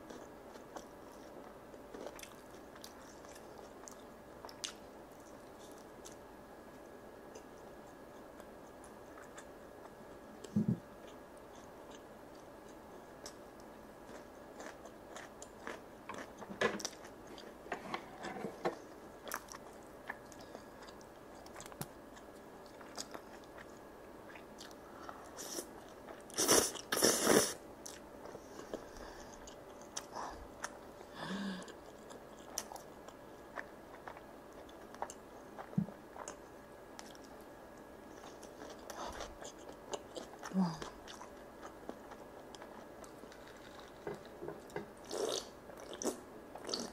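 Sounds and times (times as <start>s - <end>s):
chewing and biting food: 14.0s - 17.6s, 19.2s - 24.8s, 31.7s - 36.4s.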